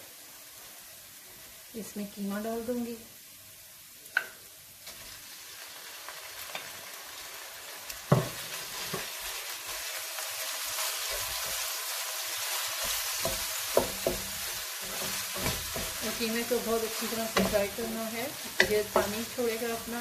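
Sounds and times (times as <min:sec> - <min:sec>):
meat sizzling in a wok: 0:00.0 - 0:20.0
wooden spoon knocking and scraping: 0:13.2 - 0:16.2, 0:17.3 - 0:19.6.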